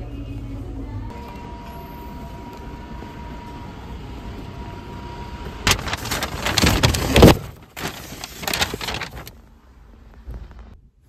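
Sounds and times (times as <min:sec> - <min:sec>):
outdoor background noise: 0:00.0 - 0:11.0
paper bag rustling: 0:05.7 - 0:09.4.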